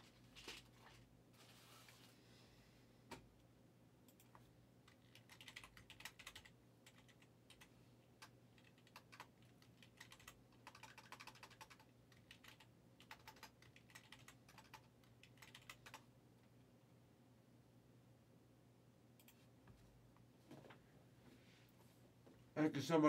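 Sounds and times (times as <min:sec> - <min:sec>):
keyboard typing: 0:04.1 - 0:16.1.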